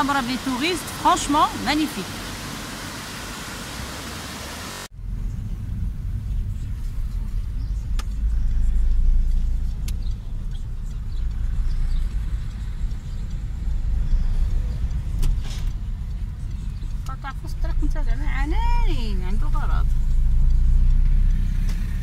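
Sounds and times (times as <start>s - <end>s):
car engine and road rumble: 0.0s - 22.0s
faint clicks: 7.3s - 18.0s.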